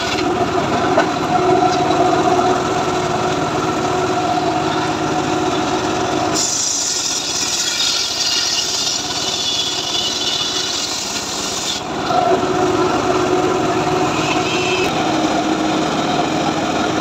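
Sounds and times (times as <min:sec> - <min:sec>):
circular saw cutting wood: 0:00.0 - 0:17.0
engine running under load: 0:00.0 - 0:17.0
saw blade spinning free: 0:06.3 - 0:12.0.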